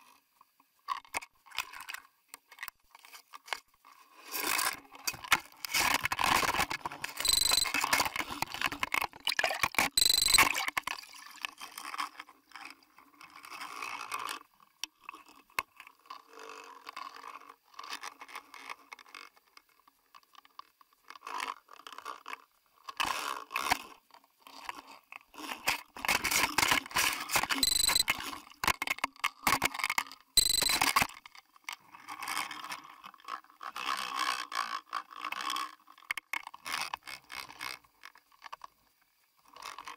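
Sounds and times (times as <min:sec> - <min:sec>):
short high squeaks: 0:07.2 - 0:08.0, 0:09.9 - 0:10.6, 0:27.5 - 0:28.2, 0:30.4 - 0:31.1.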